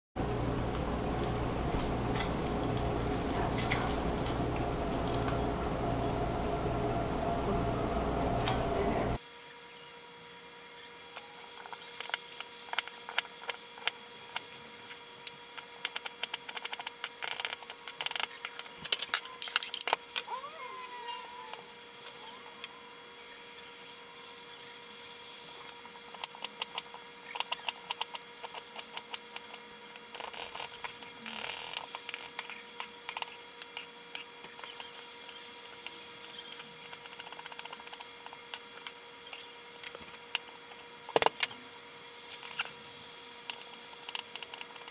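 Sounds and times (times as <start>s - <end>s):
loud dense sound: 0.2s - 9.2s
faint steady hum: 0.2s - 9.9s.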